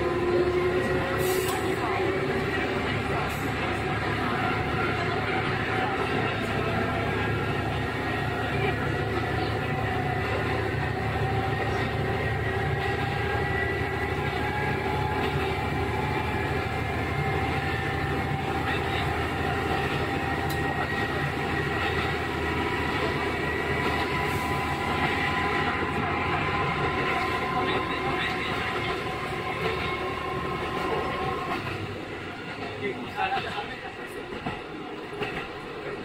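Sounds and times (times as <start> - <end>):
railcar running noise: 0.0 - 36.0.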